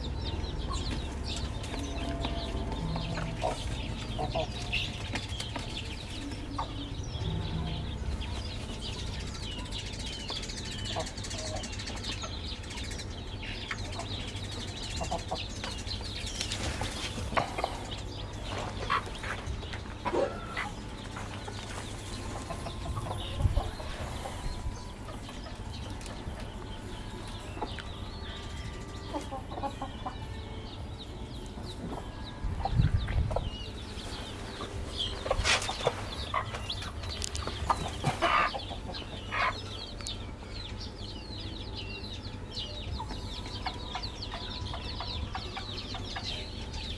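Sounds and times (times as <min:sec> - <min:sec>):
chickens clucking: 0:00.0 - 0:46.9.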